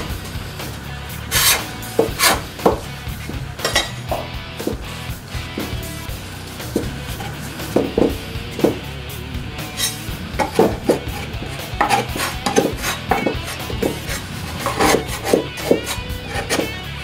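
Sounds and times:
music: 0.0 - 17.0
hands scraping sticky dough: 0.2 - 4.0, 9.6 - 16.9.

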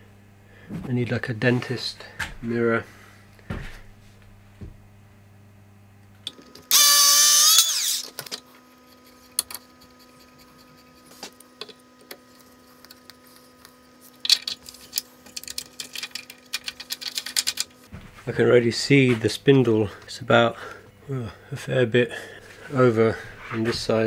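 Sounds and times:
power drill running: 6.7 - 8.2
metal hardware clicking and rattling: 14.2 - 17.7.

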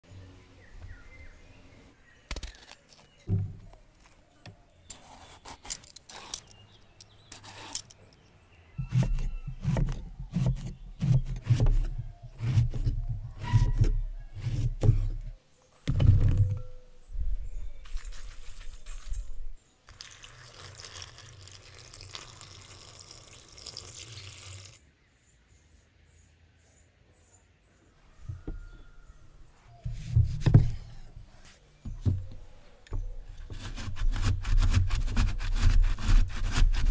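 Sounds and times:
knife slicing on wooden board: 8.8 - 15.1
water pouring into glass bowl: 19.9 - 24.8.

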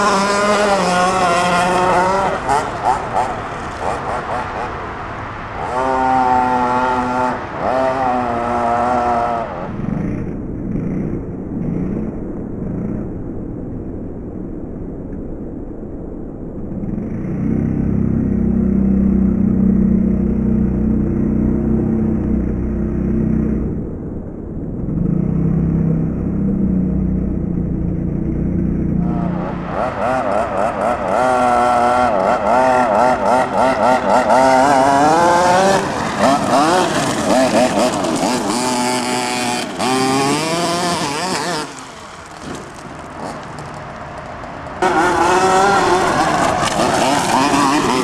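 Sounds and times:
small two-stroke engine revving: 0.0 - 4.3, 5.6 - 12.1, 28.9 - 43.5, 44.8 - 48.0.

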